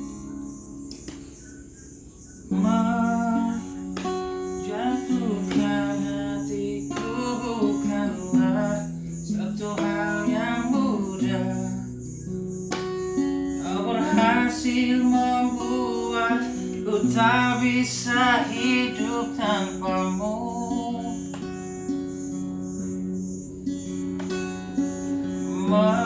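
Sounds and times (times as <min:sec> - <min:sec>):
acoustic guitar: 0:00.0 - 0:26.0
man singing: 0:02.5 - 0:12.0, 0:13.6 - 0:21.5, 0:25.4 - 0:26.0.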